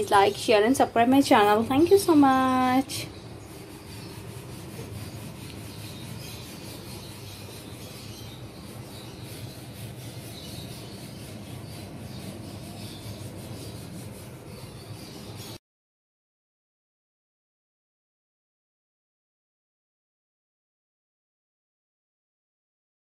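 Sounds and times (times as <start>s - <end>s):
faint rubbing noise: 0.0s - 15.6s.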